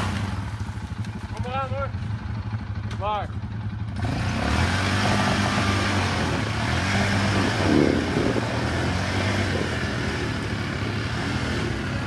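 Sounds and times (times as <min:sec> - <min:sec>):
quad bike engine revving: 0:00.0 - 0:12.0
wheels spinning in mud: 0:04.0 - 0:12.0.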